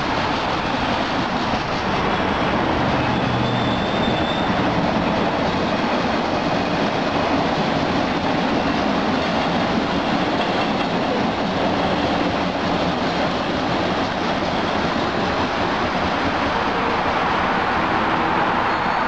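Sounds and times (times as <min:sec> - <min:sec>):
subway train wheels on rails: 0:00.0 - 0:19.0.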